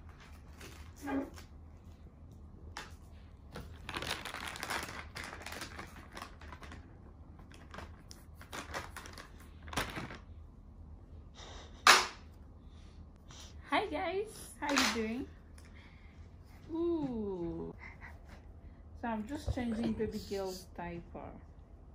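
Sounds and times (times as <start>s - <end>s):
plastic packet crinkling: 3.6s - 10.2s
loud plastic crackle: 3.6s - 10.3s.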